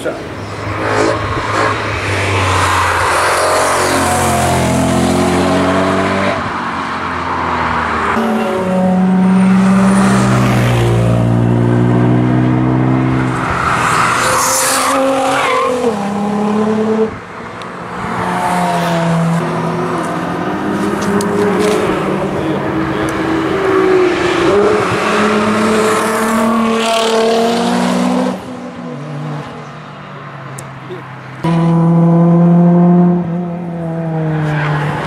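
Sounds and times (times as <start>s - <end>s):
race car engines revving: 0.0s - 35.0s.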